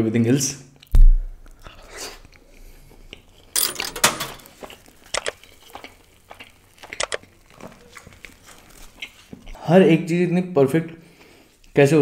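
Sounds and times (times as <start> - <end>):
bread tearing: 4.4 - 9.4.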